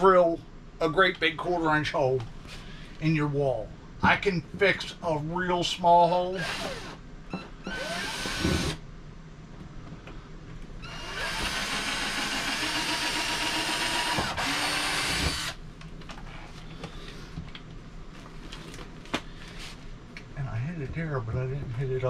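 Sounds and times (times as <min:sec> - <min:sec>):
cordless drill drilling: 0:06.4 - 0:07.0, 0:07.6 - 0:08.8, 0:10.8 - 0:15.6.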